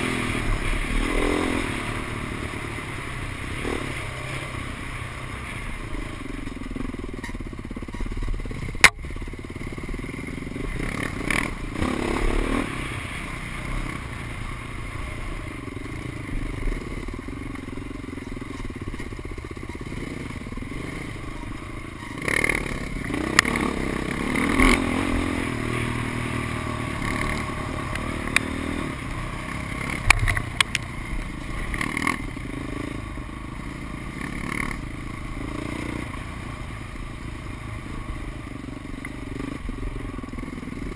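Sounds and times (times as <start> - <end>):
dirt bike engine revving: 0.0 - 40.9
knocks and clatter over rocks: 29.9 - 32.2.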